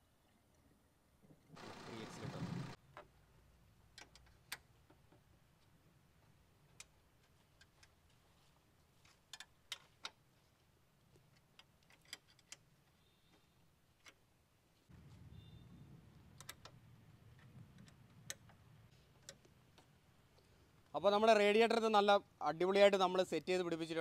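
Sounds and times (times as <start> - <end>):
faint low hum: 0.2 - 2.8.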